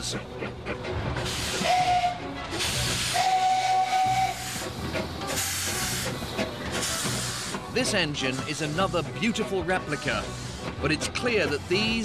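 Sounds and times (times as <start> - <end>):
steam locomotive hissing: 0.0 - 12.0
steam whistle: 1.5 - 2.3, 2.9 - 4.6.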